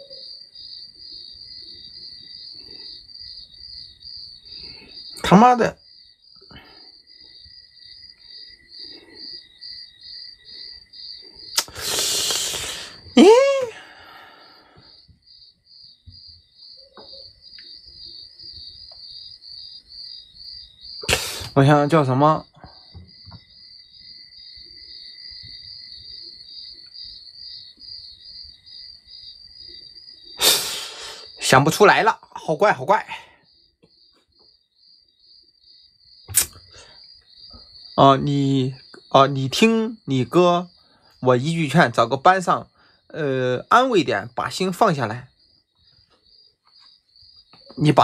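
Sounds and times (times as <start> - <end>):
cricket chirping: 0.0 - 48.0
sharp click: 11.6 - 11.8, 36.3 - 36.6
soft breath: 13.8 - 15.1.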